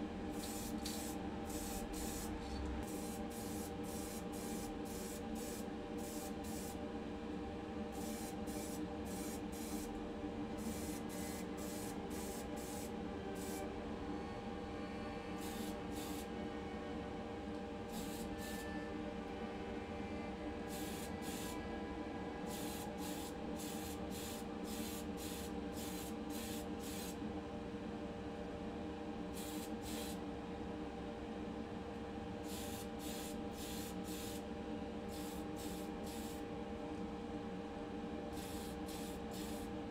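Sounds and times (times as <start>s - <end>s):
steady hum: 0.0s - 39.9s.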